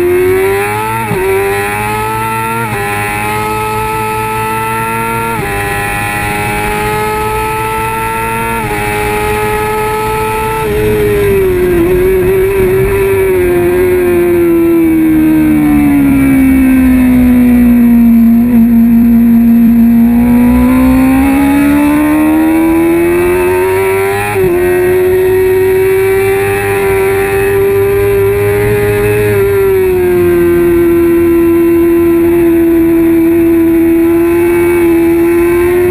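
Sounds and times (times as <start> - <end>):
motorcycle engine revving: 0.0 - 35.9
wind rush: 8.7 - 17.8.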